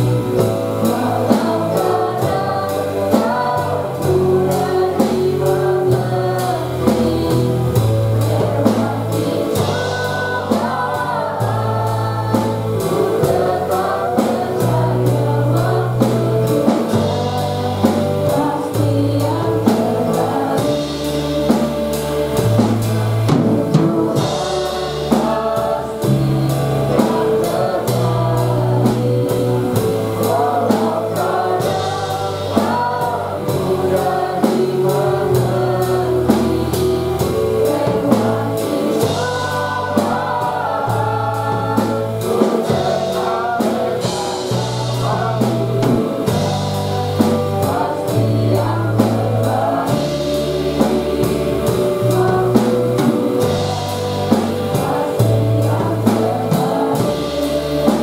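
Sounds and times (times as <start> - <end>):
drum beat: 0.0 - 58.0
electric bass line: 0.0 - 58.0
keyboard: 0.0 - 58.0.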